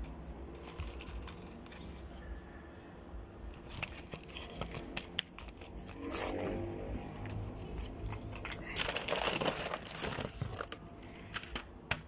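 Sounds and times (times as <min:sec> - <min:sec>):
packaging crinkling: 0:07.7 - 0:11.6.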